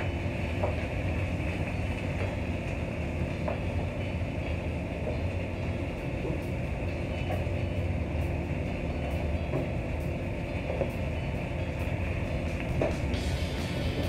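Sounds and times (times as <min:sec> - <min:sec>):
extractor hood fan rumbling: 0:00.0 - 0:14.0.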